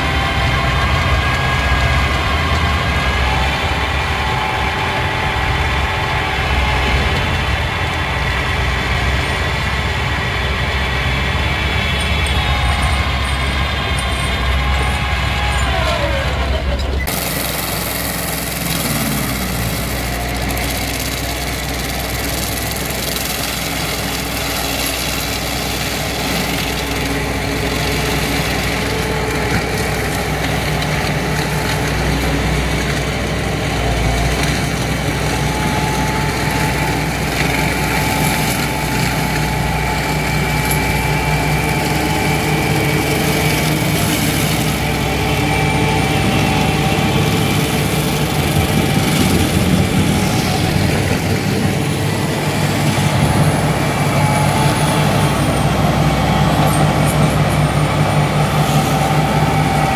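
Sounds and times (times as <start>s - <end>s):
diesel excavator engine: 0.0s - 59.9s
mulching head grinding ground: 0.0s - 59.9s.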